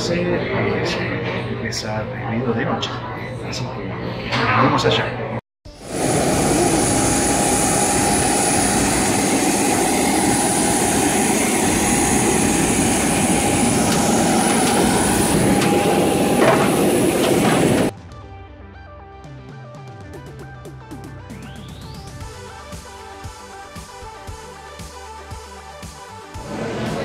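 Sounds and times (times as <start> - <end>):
jet engine rush and whine: 5.7 - 18.0.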